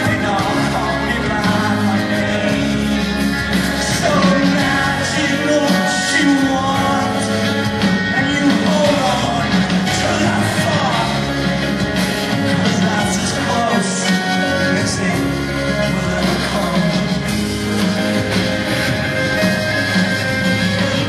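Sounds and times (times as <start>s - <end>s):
live rock band music: 0.0s - 21.0s
person singing: 0.0s - 21.0s.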